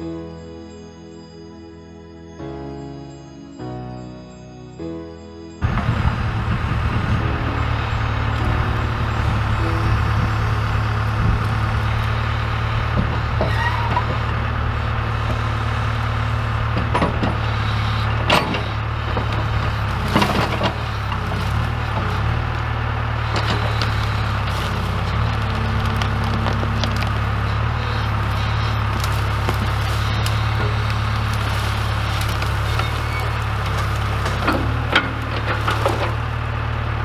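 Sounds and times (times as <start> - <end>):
diesel engine running: 5.6 - 37.0
branches snapping: 23.3 - 36.5.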